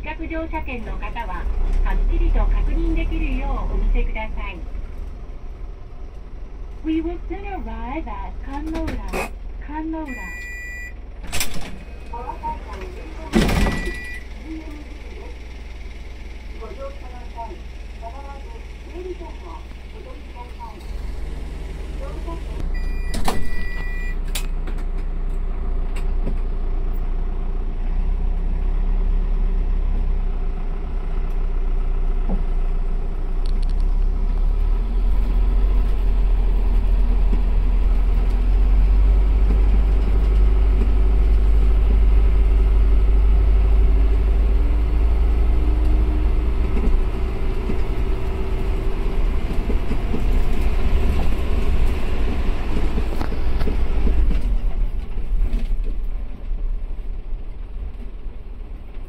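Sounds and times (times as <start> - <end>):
vehicle engine and road rumble: 0.0 - 59.0
short electronic beep: 10.1 - 11.0, 13.6 - 14.3, 22.7 - 24.2.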